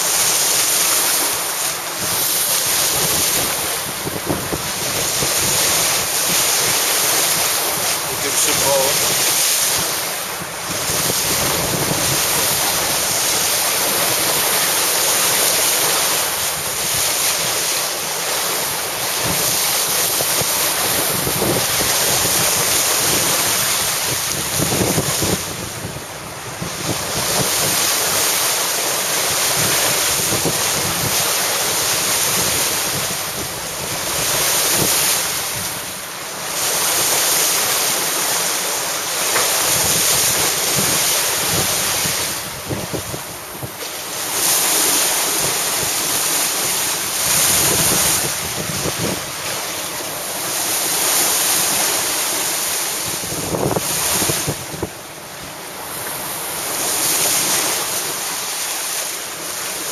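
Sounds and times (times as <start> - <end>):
sea water rushing along hull: 0.0 - 59.9
wind buffeting microphone: 1.9 - 14.8, 19.1 - 28.3, 29.2 - 35.9, 39.5 - 50.0, 52.9 - 56.4.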